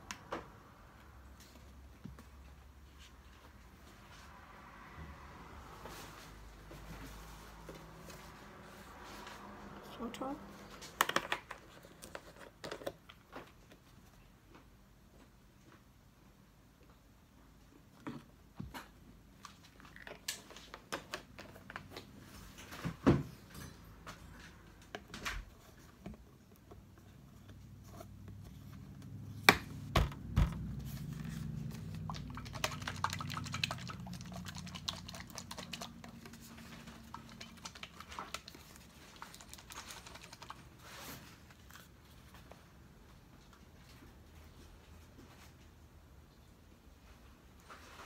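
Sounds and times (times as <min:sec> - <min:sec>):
plastic bottles and cups handled: 0:24.1 - 0:42.4.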